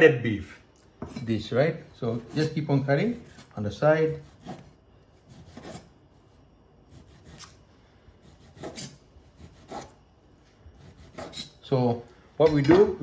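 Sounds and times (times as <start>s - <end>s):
knife slicing meat on board: 4.1s - 5.9s, 6.9s - 7.6s, 8.2s - 10.0s, 10.8s - 11.6s.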